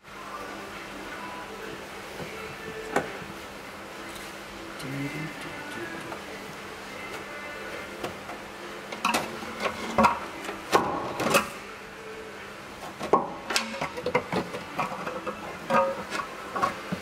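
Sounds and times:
metal tank clunking and scraping: 0:09.0 - 0:11.6, 0:12.9 - 0:17.0.

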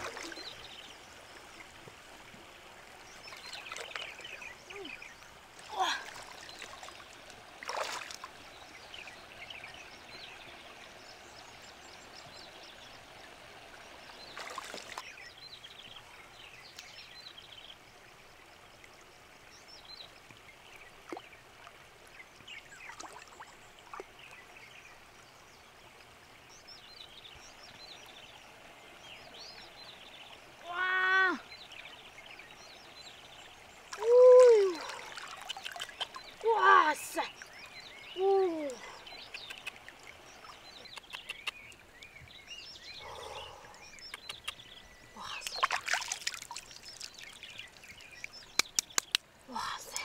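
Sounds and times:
water splashes: 0:00.0 - 0:15.2, 0:18.8 - 0:25.2, 0:33.1 - 0:50.0
shallow river water sloshing: 0:00.0 - 0:30.7, 0:31.5 - 0:50.0
small drips and clicks: 0:33.9 - 0:37.8, 0:38.5 - 0:42.2, 0:43.7 - 0:50.0.

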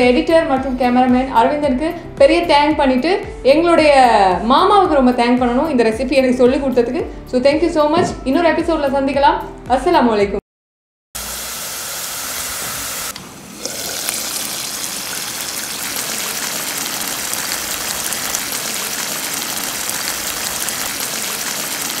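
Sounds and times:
onions sizzling in hot oil: 0:11.2 - 0:22.0.

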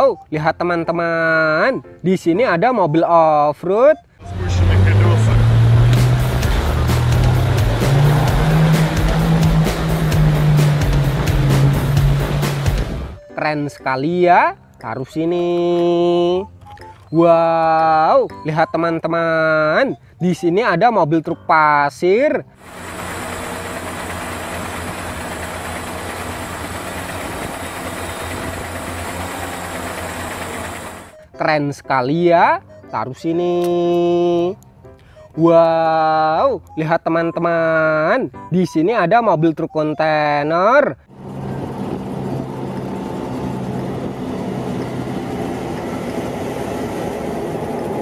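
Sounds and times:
diesel engine running: 0:04.2 - 0:13.2, 0:22.6 - 0:31.3, 0:41.1 - 0:48.0
truck driving past: 0:04.2 - 0:13.2, 0:22.6 - 0:31.2, 0:41.0 - 0:48.0
tyre and road noise: 0:04.2 - 0:13.2, 0:22.6 - 0:31.2, 0:41.1 - 0:48.0.

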